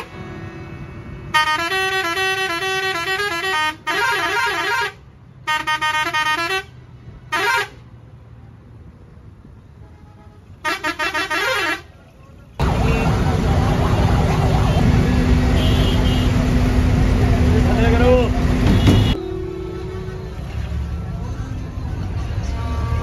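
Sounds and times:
multi-tone musical vehicle horn: 0.0s - 7.8s, 9.8s - 11.9s, 14.6s - 16.6s, 18.7s - 20.8s.

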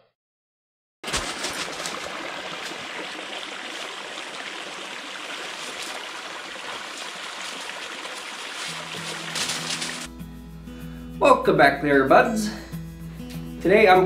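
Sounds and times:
creek water flowing over rocks: 1.0s - 10.1s.

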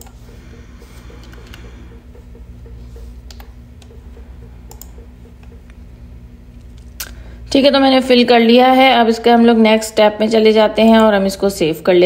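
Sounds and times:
low steady hum: 0.0s - 12.0s
mouse clicks: 4.7s - 5.0s
computer keyboard keystrokes: 4.7s - 5.7s.

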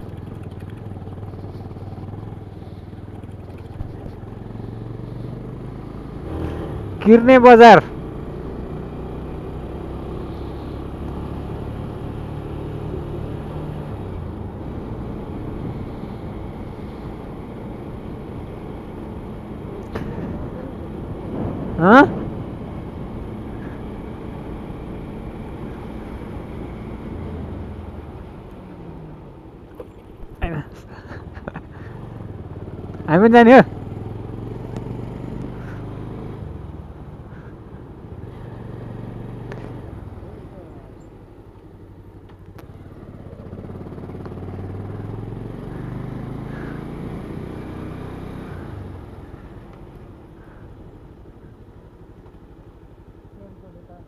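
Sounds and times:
motorcycle engine running: 0.0s - 54.0s
wind rumbling on microphone: 20.0s - 23.9s.

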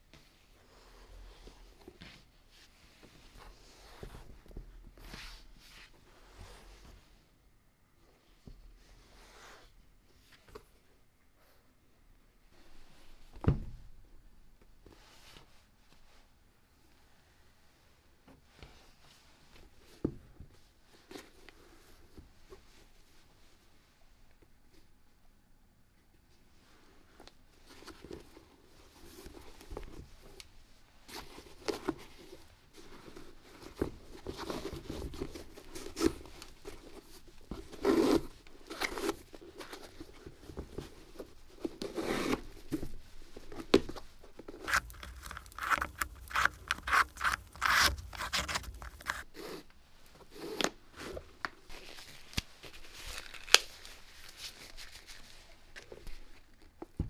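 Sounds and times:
rubbing and scraping on sneakers: 31.1s - 52.2s.

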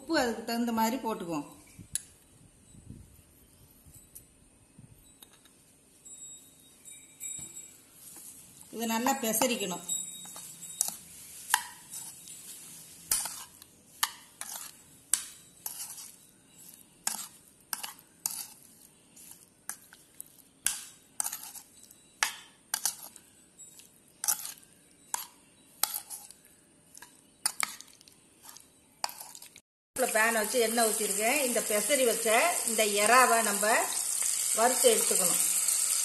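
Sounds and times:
spoon clinking against bowl: 9.0s - 12.4s, 20.6s - 26.4s.

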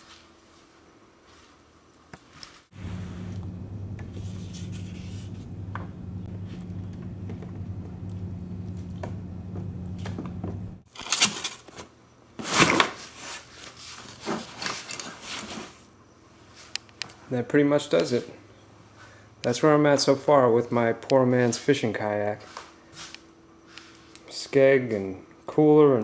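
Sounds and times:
steady low hum: 2.7s - 10.9s.

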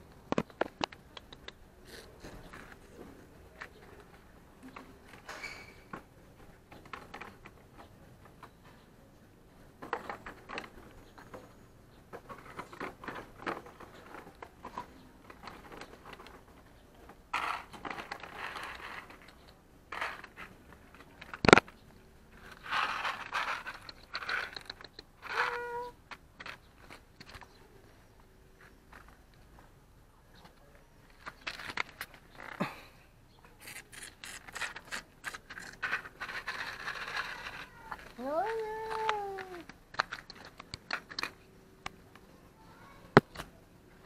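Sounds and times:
plastic tub scraping and crinkling: 12.2s - 25.6s, 33.6s - 41.3s.

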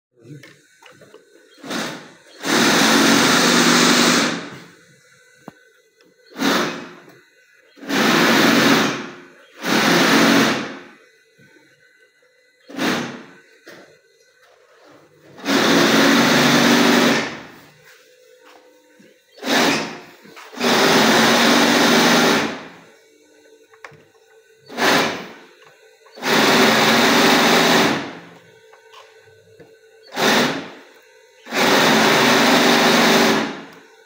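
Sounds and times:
industrial sewing machine running: 1.6s - 4.6s, 6.3s - 7.1s, 7.8s - 11.0s, 12.7s - 13.4s, 15.3s - 17.6s, 19.4s - 22.9s, 24.6s - 25.5s, 26.1s - 28.4s, 30.0s - 33.8s.

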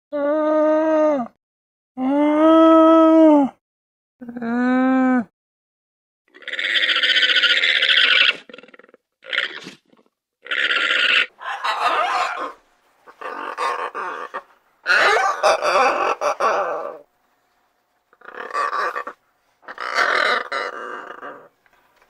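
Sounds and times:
macaw squawks: 10.5s - 17.0s, 18.2s - 21.5s.

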